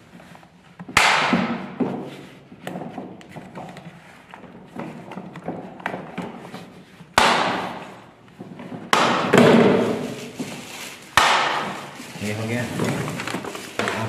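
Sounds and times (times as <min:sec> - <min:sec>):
plastic wheel knocks and rattle: 0:11.7 - 0:14.0.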